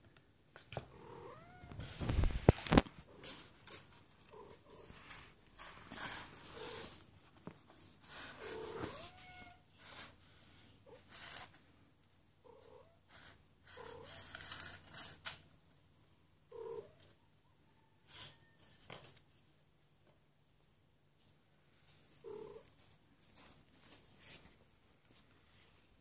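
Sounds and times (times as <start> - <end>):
scratching cardboard tube: 13.1 - 15.4.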